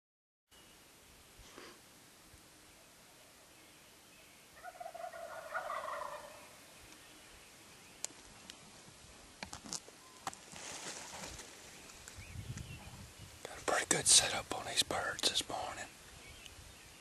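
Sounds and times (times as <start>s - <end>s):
turkey gobbling: 4.6s - 6.6s.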